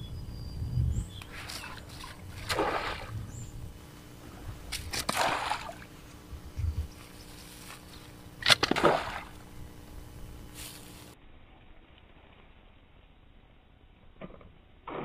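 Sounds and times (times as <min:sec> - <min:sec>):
pond water sloshing and splashing: 0:01.3 - 0:03.4, 0:04.2 - 0:06.3, 0:07.0 - 0:09.8.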